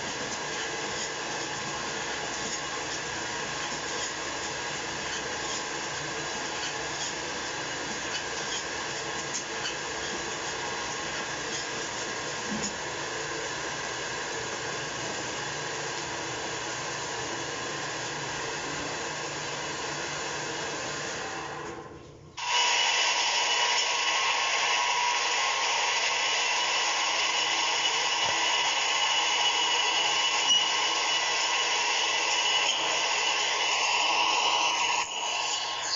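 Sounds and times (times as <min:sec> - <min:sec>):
popcorn machine whirring: 0:00.0 - 0:35.9
steady whine: 0:21.6 - 0:35.9.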